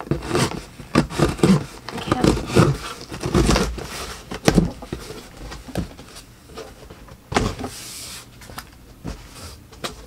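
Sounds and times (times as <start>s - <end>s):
cardboard scraping slide: 7.4s - 8.3s.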